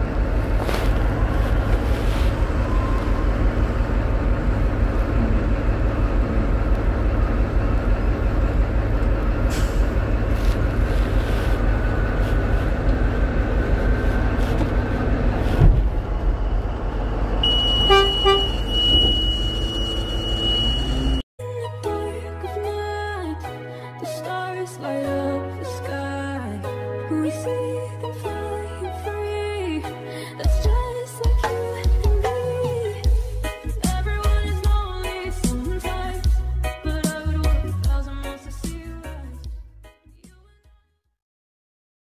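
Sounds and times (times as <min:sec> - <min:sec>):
diesel engine rumble: 0:00.0 - 0:21.3, 0:32.7 - 0:39.4
high-pitched tone: 0:17.4 - 0:21.2
short beeps: 0:17.4 - 0:21.2.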